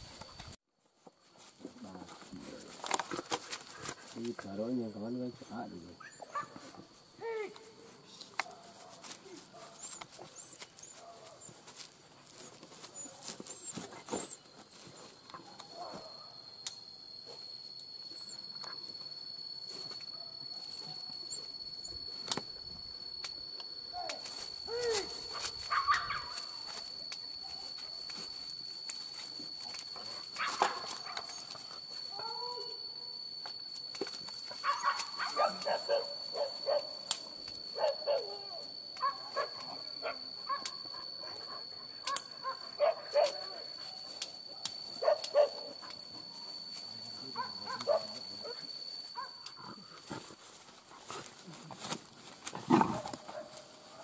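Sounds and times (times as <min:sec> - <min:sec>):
high-pitched whine: 0:01.4 - 0:54.0
dogs barking: 0:25.7 - 0:26.4, 0:34.6 - 0:37.0, 0:42.0 - 0:43.4, 0:45.0 - 0:45.8, 0:47.4 - 0:48.6.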